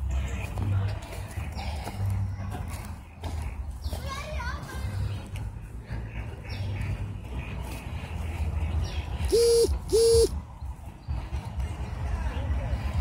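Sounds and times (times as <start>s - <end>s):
electronic hooting tones: 9.3s - 10.3s.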